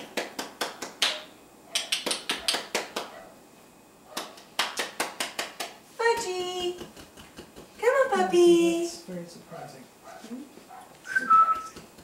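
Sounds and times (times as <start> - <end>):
quick light hand claps: 0.0 - 3.2, 4.2 - 7.8, 11.5 - 12.0.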